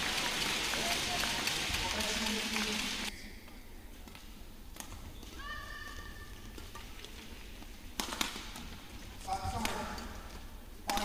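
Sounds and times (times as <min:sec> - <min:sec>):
racket hitting shuttlecock: 0:07.9 - 0:08.8.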